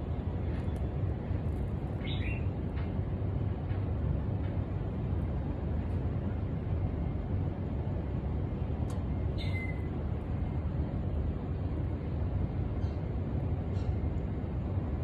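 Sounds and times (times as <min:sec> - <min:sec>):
city traffic rumble: 0:00.0 - 0:15.0
bird chirp: 0:02.0 - 0:02.5, 0:09.3 - 0:09.9.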